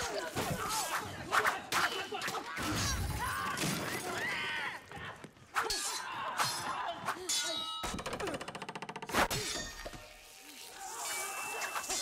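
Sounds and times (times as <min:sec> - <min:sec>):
sword blades clanging: 0:05.6 - 0:08.0.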